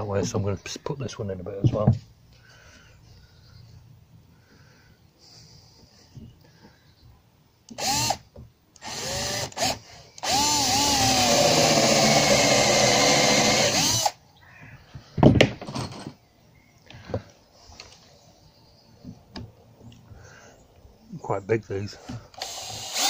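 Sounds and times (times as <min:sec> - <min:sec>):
cordless drill cutting wood: 0:07.7 - 0:08.2, 0:08.8 - 0:14.2, 0:22.3 - 0:23.0.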